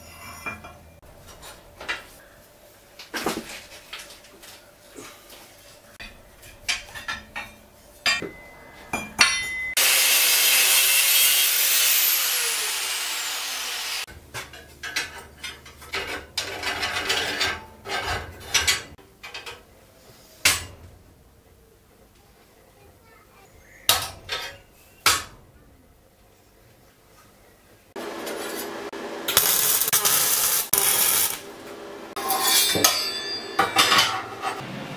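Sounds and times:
steel rod scraping and clanking: 0:00.0 - 0:02.1, 0:14.4 - 0:19.6, 0:32.2 - 0:34.6
metal knocks on anvil: 0:06.0 - 0:09.7, 0:32.6 - 0:34.3.

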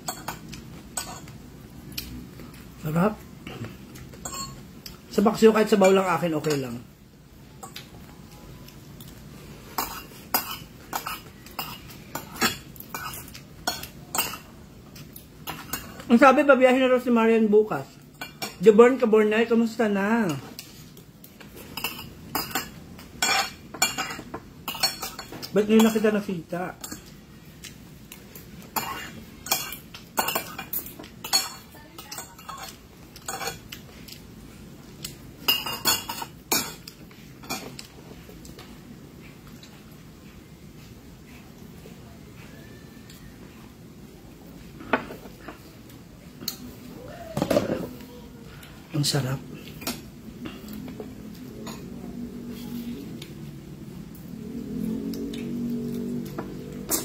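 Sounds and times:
cutlery clinking on plate: 0:04.2 - 0:04.6
metal spoon clinking on a plate: 0:04.2 - 0:04.6, 0:21.8 - 0:26.0.

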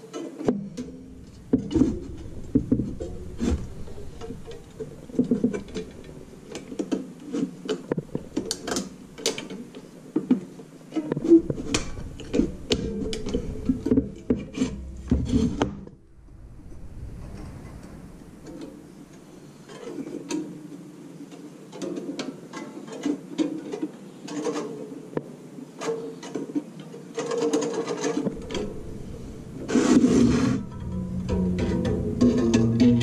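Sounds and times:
wire scraping and clicking on metal: 0:00.8 - 0:09.9.

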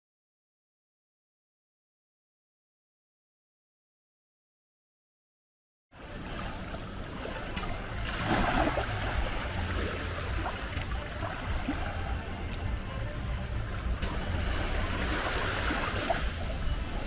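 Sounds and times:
rushing water: 0:06.0 - 0:17.0
steady low rumble: 0:06.0 - 0:17.0.

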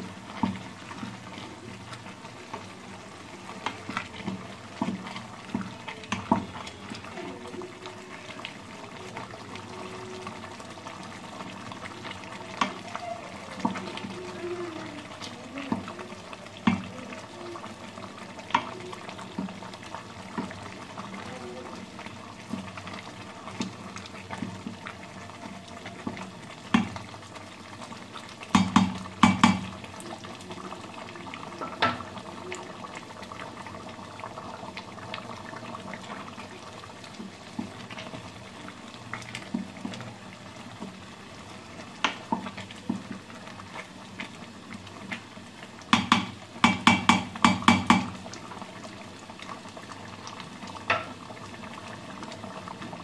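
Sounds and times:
spoon stirring wet food: 0:00.0 - 0:07.6, 0:11.4 - 0:17.4, 0:28.3 - 0:29.9, 0:45.9 - 0:48.3
food simmering: 0:00.0 - 0:53.0
spoon knocking pot: 0:28.5 - 0:29.7, 0:45.9 - 0:48.2.

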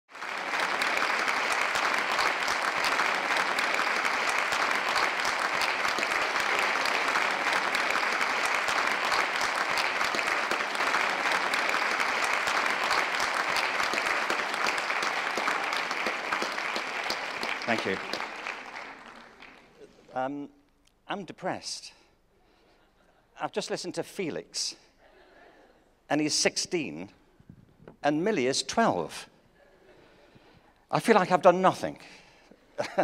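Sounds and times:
audience applauding: 0:00.0 - 0:20.1.

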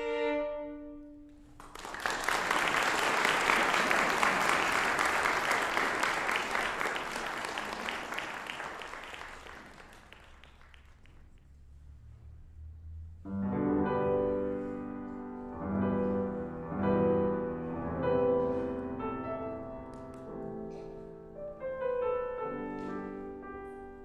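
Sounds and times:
audience applauding: 0:01.5 - 0:11.5.

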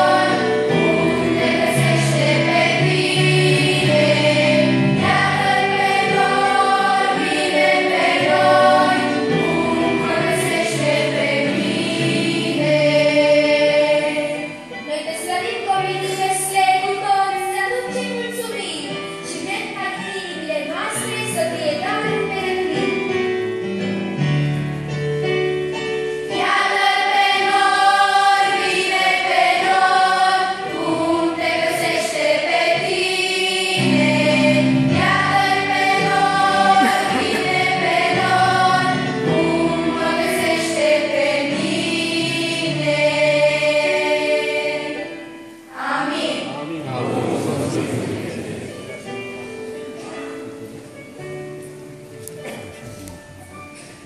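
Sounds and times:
choir singing: 0:00.0 - 0:17.3, 0:26.3 - 0:49.2
keyboard accompaniment: 0:00.0 - 0:54.0.

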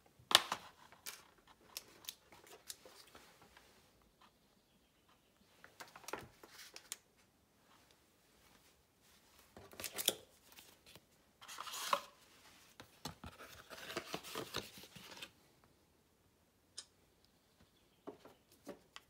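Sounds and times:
rustling handling noise: 0:00.5 - 0:04.4, 0:05.5 - 0:15.4.

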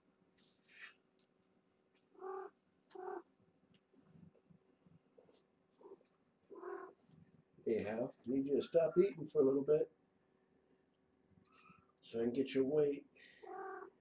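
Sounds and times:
cat meowing: 0:02.2 - 0:03.2, 0:05.8 - 0:07.0, 0:13.4 - 0:14.0.

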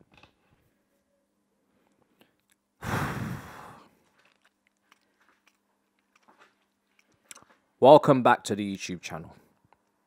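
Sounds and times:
man sighing: 0:02.8 - 0:03.9.

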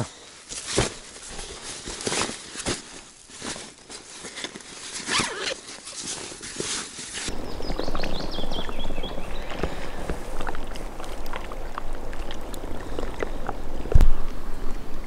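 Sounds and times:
rubber waders rustling: 0:00.4 - 0:08.5.

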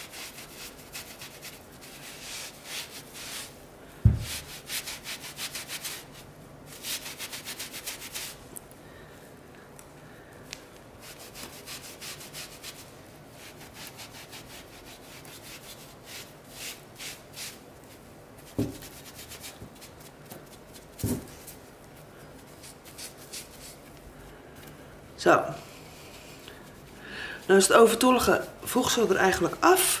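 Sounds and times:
damp sponge rubbing grout: 0:00.0 - 0:08.4, 0:11.0 - 0:20.1.

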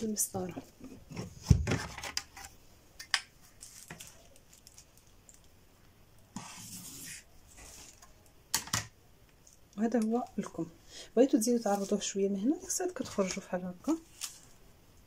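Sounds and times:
marker scratching on plastic: 0:06.3 - 0:08.0.

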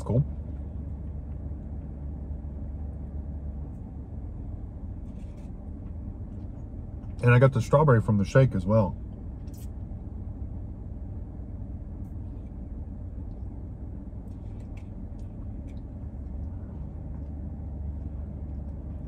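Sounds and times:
low rumble inside car cabin: 0:00.0 - 0:19.0.

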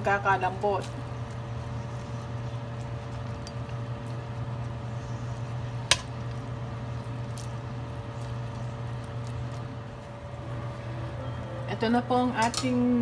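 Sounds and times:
tongs stirring noodles in pot: 0:00.0 - 0:10.2
steady low hum: 0:00.0 - 0:13.0.

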